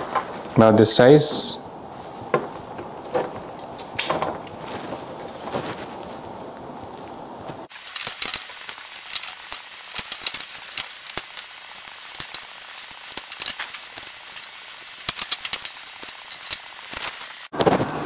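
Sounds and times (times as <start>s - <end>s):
steady hiss: 0.0s - 18.0s.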